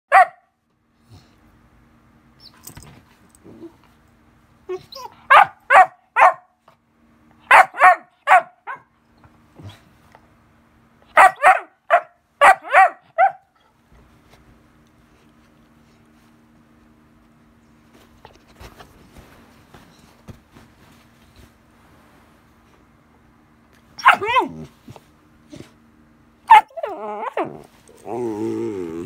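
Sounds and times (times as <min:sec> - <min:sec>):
puppy barking: 0:00.1 - 0:00.6, 0:05.0 - 0:06.6, 0:07.4 - 0:08.9, 0:11.1 - 0:13.5, 0:24.0 - 0:24.7, 0:26.5 - 0:27.5.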